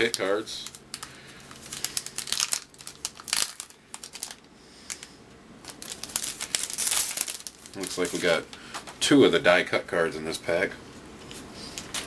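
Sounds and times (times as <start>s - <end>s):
foil wrapper crinkling: 0.0s - 9.0s.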